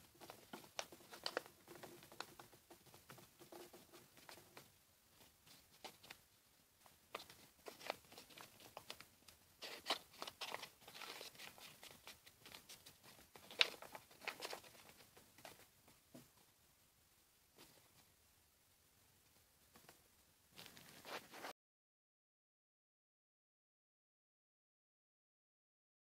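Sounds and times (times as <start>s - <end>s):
paper crinkling while folded: 0.1s - 2.2s, 7.1s - 9.0s, 9.6s - 15.0s.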